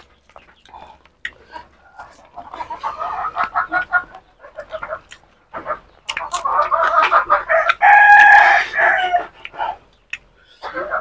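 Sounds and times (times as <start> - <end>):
rooster crowing: 7.5 - 9.3.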